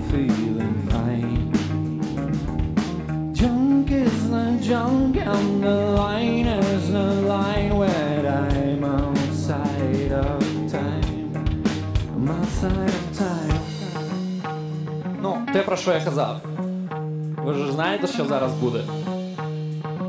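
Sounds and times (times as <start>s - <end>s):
man singing: 0.0s - 2.2s, 3.3s - 14.5s, 17.5s - 19.0s
bass guitar: 0.0s - 20.0s
drum kit: 0.0s - 20.0s
electric guitar: 0.0s - 20.0s.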